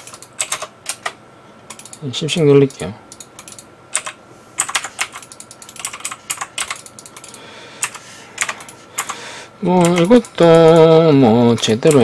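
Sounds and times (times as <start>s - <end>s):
computer keyboard typing: 0.0s - 2.0s, 3.1s - 12.0s.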